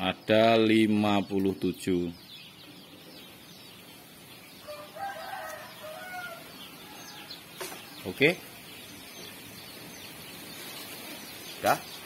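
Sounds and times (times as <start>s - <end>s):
rooster crowing: 4.6s - 7.8s.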